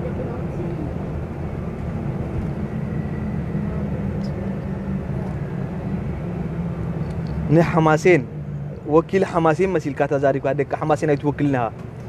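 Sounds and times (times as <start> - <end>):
vehicle cabin rumble: 0.0 - 12.0.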